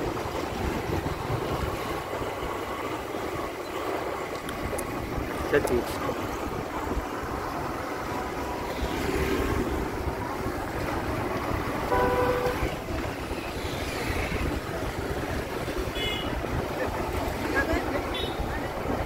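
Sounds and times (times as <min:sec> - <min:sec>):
motorbike and rickshaw engines: 0:00.0 - 0:19.0
vehicle horn honk: 0:11.9 - 0:12.8.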